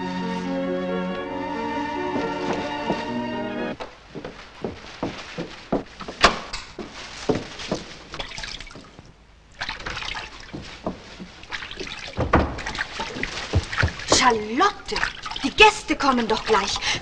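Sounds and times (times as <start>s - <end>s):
water splashing in a washbasin: 6.7s - 17.0s.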